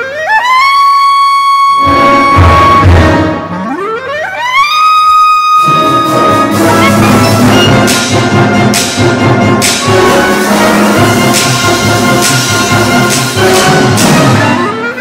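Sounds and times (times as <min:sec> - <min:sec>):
clarinet glissandos: 0:00.0 - 0:15.0
orchestra playing: 0:01.7 - 0:04.3, 0:05.4 - 0:15.0
drums and cymbal crashes: 0:06.0 - 0:14.6.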